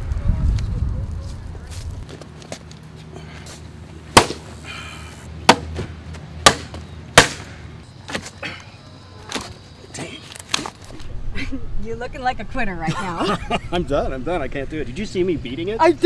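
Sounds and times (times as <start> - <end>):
stick whacking a bag: 4.2 - 4.4.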